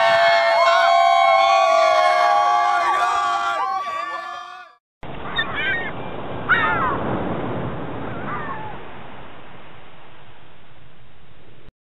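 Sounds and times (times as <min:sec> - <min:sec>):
ocean surf washing: 0:05.0 - 0:10.2
seagull call: 0:05.3 - 0:07.0.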